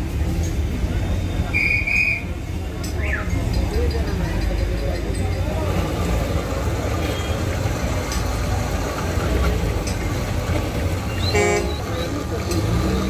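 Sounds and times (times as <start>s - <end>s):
traffic engines rumbling: 0.0s - 13.0s
car horn beep: 11.2s - 11.9s.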